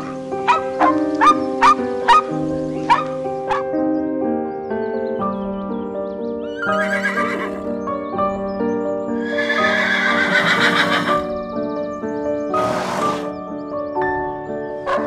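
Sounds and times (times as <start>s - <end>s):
background music: 0.0s - 15.0s
zebra braying: 9.2s - 11.3s, 12.5s - 13.3s.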